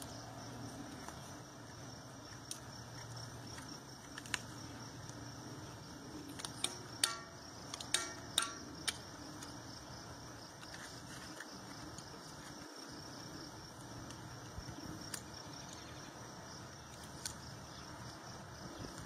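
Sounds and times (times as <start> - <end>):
metal hoof tools clicking: 6.3 - 9.5.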